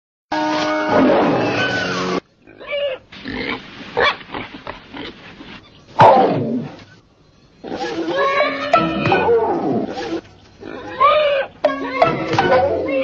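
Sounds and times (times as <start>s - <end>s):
pig squealing: 0.6s - 3.5s, 7.6s - 13.0s.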